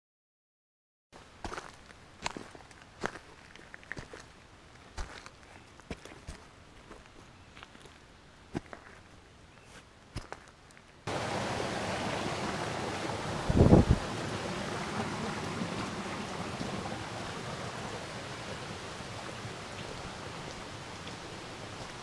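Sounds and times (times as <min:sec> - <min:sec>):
footsteps on forest trail: 0:01.4 - 0:12.9
steady rushing hiss: 0:11.1 - 0:22.0.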